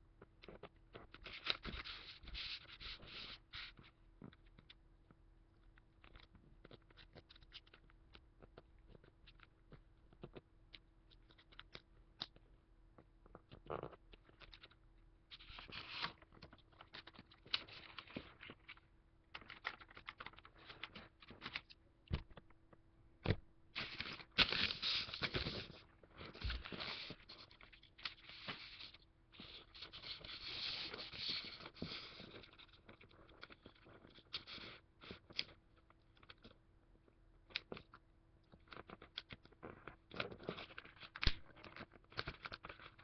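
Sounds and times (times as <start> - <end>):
paper rustling and crinkling: 14.3 - 22.5, 23.2 - 35.2, 40.1 - 43.0.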